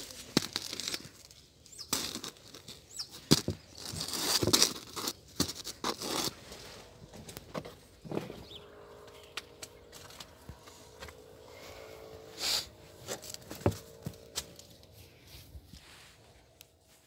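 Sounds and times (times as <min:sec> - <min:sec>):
footsteps on dry leaves: 0:00.0 - 0:07.4, 0:09.8 - 0:17.0
loud crunch: 0:00.0 - 0:08.6.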